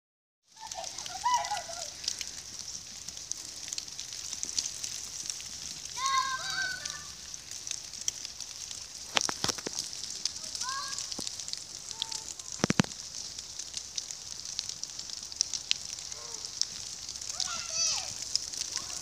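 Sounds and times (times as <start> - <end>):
children calling out: 0.5 - 2.2, 6.0 - 7.2, 10.4 - 11.2, 17.3 - 19.0
steady hiss with crackles: 0.5 - 19.0.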